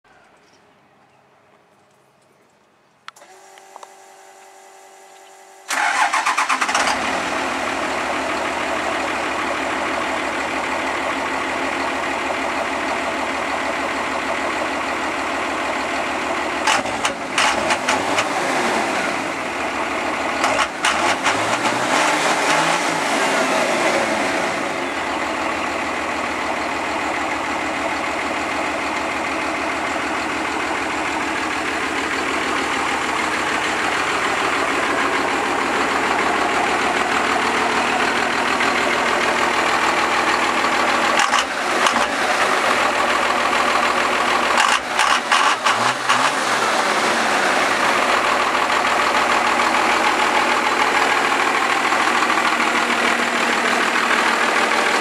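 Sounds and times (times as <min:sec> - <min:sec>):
diesel engine idling and revving: 0:03.1 - 0:55.0
starter motor whirring: 0:05.7 - 0:07.4.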